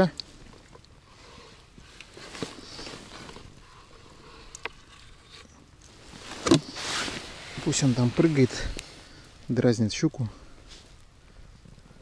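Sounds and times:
hands rustling: 5.8 - 9.4.

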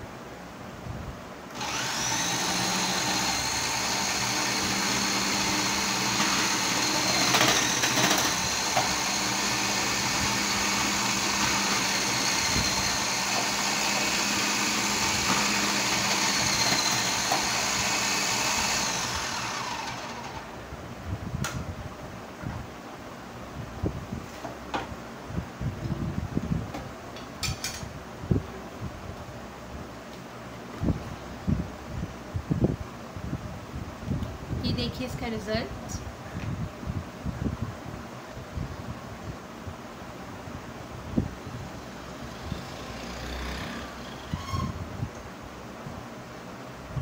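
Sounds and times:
food processor motor whining: 1.5 - 20.6, 42.3 - 44.8.

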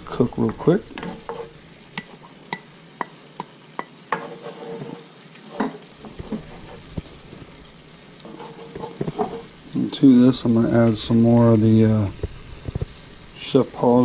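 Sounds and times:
onion sizzling in skillet: 0.0 - 14.0
metal spatula scraping pan: 0.4 - 2.4, 4.1 - 7.2, 8.2 - 9.6.

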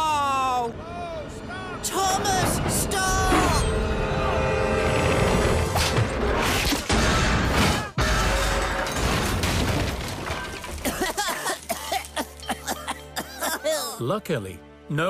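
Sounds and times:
dramatic music: 0.0 - 9.1
metal scaffolding crashing: 5.8 - 12.6.

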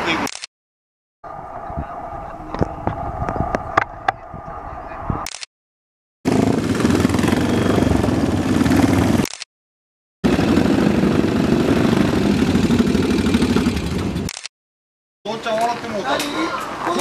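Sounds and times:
motorcycle engines idling: 6.3 - 9.2, 10.3 - 14.3.

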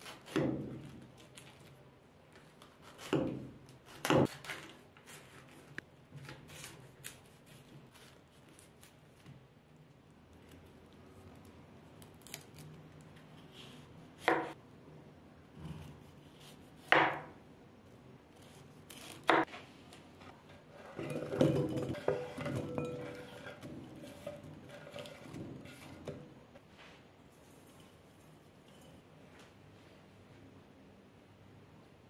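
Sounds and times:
knife chopping on cutting board: 14.2 - 14.6, 16.8 - 17.4.

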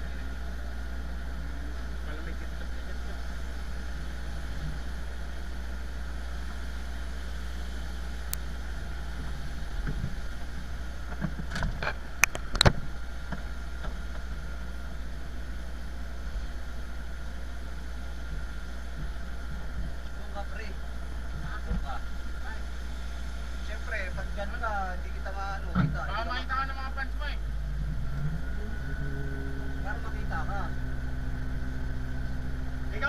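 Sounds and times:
faint steady whine: 0.0 - 33.0
aircraft engine idling: 26.5 - 33.0.

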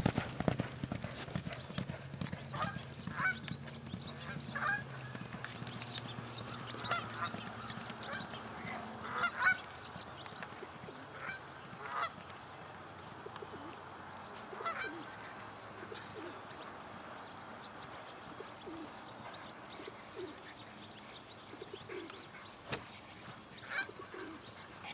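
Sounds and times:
geese honking: 2.5 - 3.4, 4.2 - 5.1, 6.4 - 9.7, 11.1 - 12.2, 14.6 - 15.1.

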